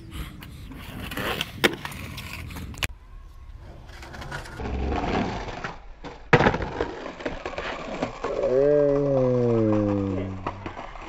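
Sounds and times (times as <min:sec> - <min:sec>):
skateboard wheels rolling on concrete: 0:00.0 - 0:11.0
skateboard slapping concrete: 0:03.9 - 0:11.0.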